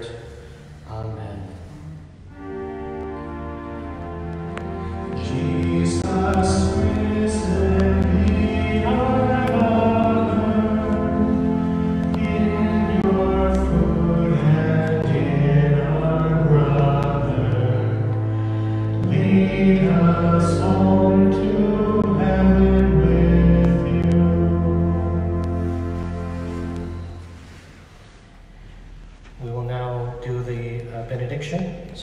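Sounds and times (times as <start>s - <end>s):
sustained low notes: 1.0s - 30.6s
voices singing a hymn: 2.3s - 27.6s.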